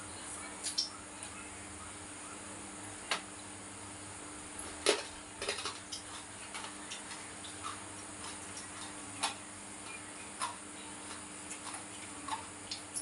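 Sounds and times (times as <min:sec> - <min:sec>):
faint steady hum: 0:00.0 - 0:13.0
clicks and knocks on plates: 0:04.8 - 0:09.4.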